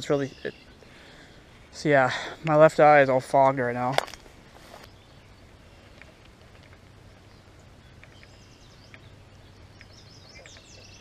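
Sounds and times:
songbird singing: 0.0 - 11.0.

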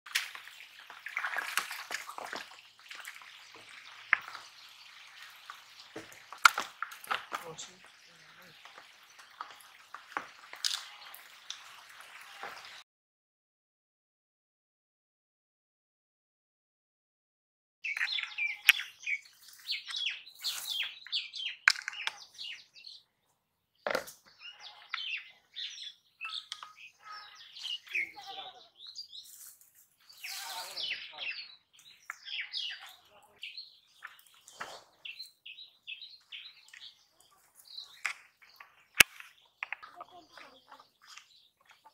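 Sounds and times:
fish splashing in water: 0.1 - 12.8
small birds chirping: 0.1 - 12.8, 17.8 - 41.9.

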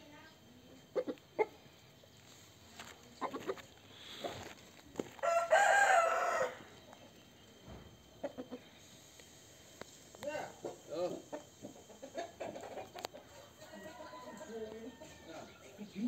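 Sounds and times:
soft chicken clucks: 0.9 - 1.6, 3.1 - 4.4, 8.2 - 8.8, 10.6 - 15.8
rooster crowing: 5.1 - 6.8, 13.3 - 16.0.

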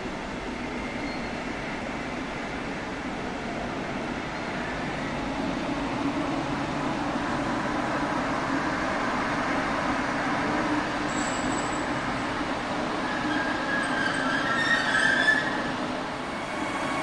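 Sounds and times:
train wheels and motors rumbling: 0.0 - 17.0
train wheel squeal: 0.6 - 1.7, 10.7 - 17.0.

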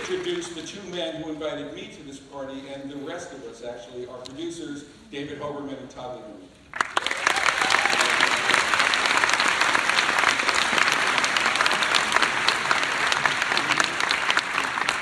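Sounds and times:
large audience applauding: 0.0 - 0.7, 6.7 - 15.0.

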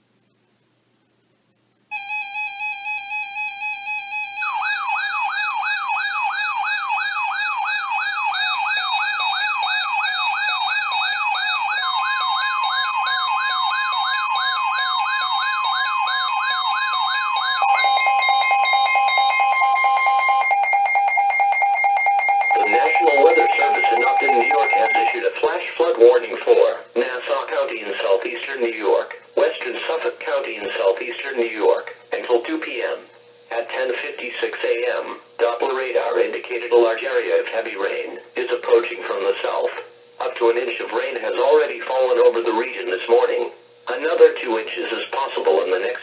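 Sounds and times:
warbling siren-like alarm: 1.9 - 25.2
long steady alert tone: 1.9 - 25.3
pulsing beeps: 17.6 - 25.2
automated voice speaking: 22.5 - 46.0.

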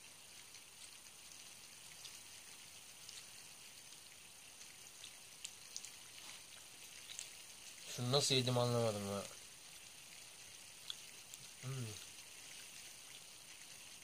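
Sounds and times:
faint steady hiss: 0.0 - 14.0
soft ticks: 10.8 - 12.1.

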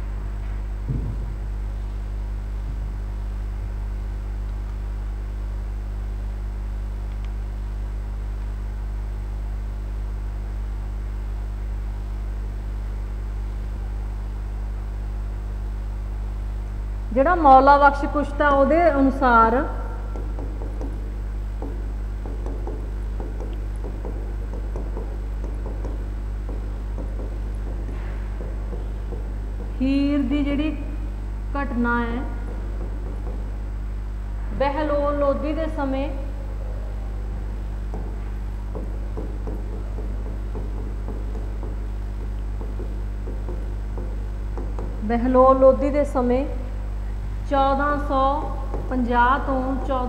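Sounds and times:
electrical mains hum: 0.0 - 50.0
chalk scratching and tapping: 20.1 - 29.8.

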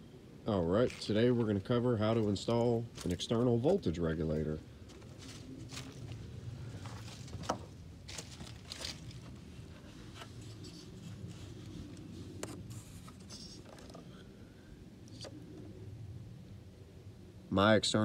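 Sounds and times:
steady low rumble: 0.0 - 13.3.

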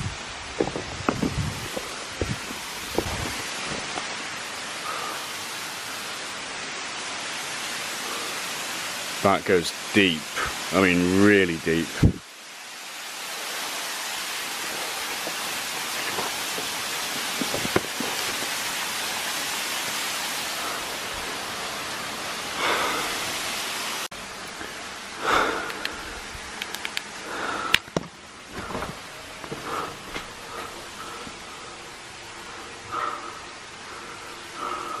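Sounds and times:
water trickling down rock: 14.3 - 19.6.

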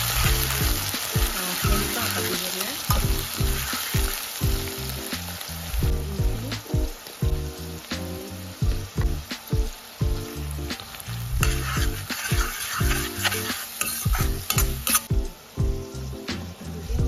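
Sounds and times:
metal spatula scraping a pan: 0.0 - 4.2, 11.4 - 15.1
background music with beat: 0.0 - 17.0
onions sizzling in oil: 0.0 - 17.0.

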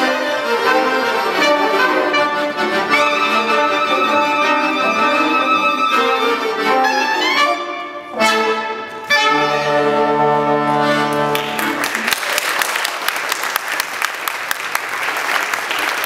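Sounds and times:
klezmer band playing: 0.0 - 12.2.

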